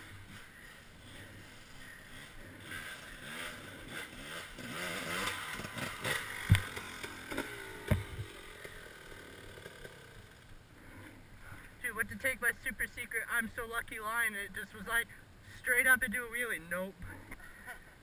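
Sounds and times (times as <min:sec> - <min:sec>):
dirt bike engine revving: 0:00.0 - 0:11.1
sharp knocks: 0:06.4 - 0:08.3.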